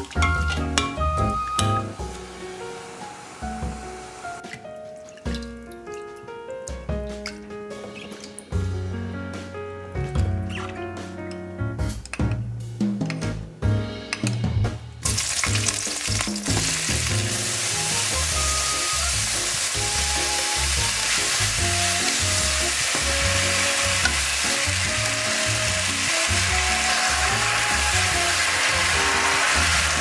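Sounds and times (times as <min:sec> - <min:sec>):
background music: 0:00.0 - 0:30.0
meat sizzling in a wok: 0:02.0 - 0:04.4, 0:15.0 - 0:30.0.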